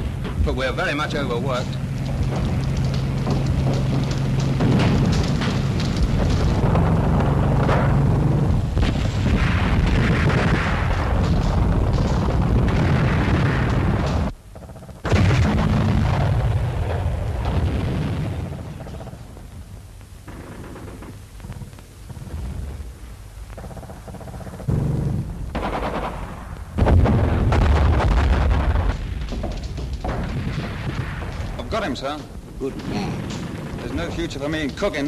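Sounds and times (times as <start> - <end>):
explosions: 0.0 - 35.0
rapid gunfire: 0.8 - 16.4, 20.3 - 22.4, 23.6 - 32.2.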